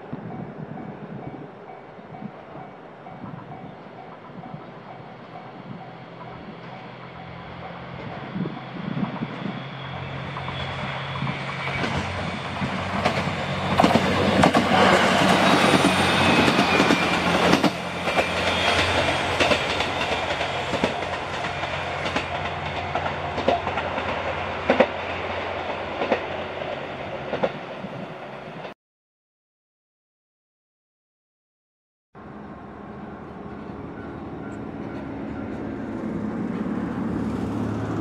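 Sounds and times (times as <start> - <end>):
railcar engine droning: 0.0 - 28.7, 32.2 - 38.0
wheels clicking over rail joints: 11.5 - 26.3.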